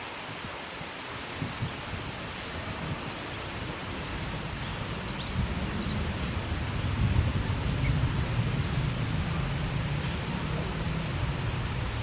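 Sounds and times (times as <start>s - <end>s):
steady outdoor hiss: 0.0s - 12.0s
low rumble: 4.8s - 12.0s.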